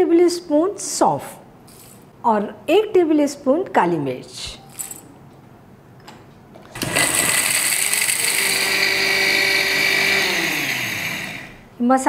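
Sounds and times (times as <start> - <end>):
mixer grinder grinding spices: 6.8 - 11.6.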